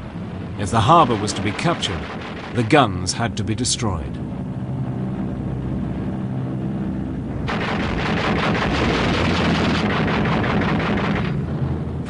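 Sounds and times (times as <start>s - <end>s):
piston aircraft engines droning: 0.0s - 12.0s
anti-aircraft gunfire clatter: 0.7s - 3.2s, 7.5s - 11.5s.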